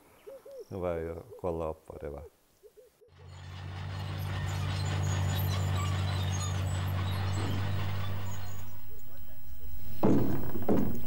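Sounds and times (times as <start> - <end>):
bulldozer diesel engine droning: 3.1 - 10.8.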